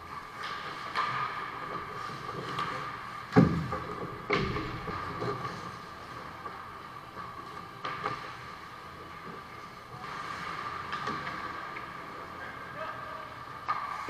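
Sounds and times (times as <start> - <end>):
puck and sticks knocking boards: 0.4 - 5.6, 7.6 - 8.4, 13.6 - 14.0.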